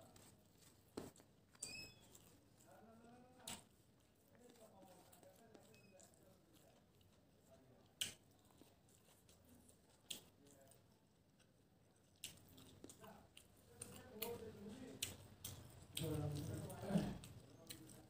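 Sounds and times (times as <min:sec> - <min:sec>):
wet chewing and smacking: 0:00.0 - 0:18.0.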